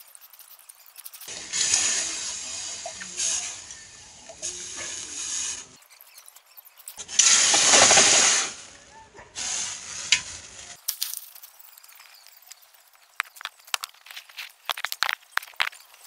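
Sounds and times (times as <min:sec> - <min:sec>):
hot steel hissing in water: 0:01.3 - 0:08.8, 0:09.4 - 0:10.8.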